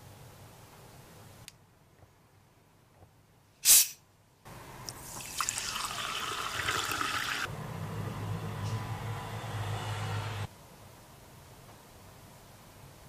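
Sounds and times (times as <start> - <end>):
bottle cap hiss: 3.6 - 4.0
water pouring into glass: 5.1 - 7.5
bubbles crackling: 5.2 - 7.5.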